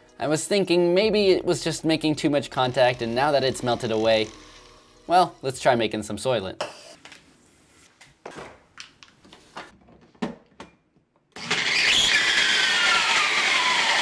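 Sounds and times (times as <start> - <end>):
blender motor whining: 11.4 - 14.0.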